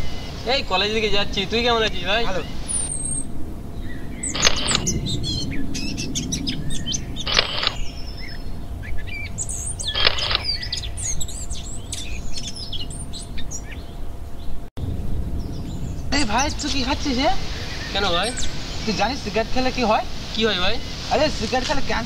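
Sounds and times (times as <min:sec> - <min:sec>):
low rumble: 0:00.0 - 0:22.0
songbirds chirping: 0:00.0 - 0:22.0
short rushes of noise: 0:04.2 - 0:05.4, 0:07.2 - 0:07.9, 0:09.8 - 0:10.6.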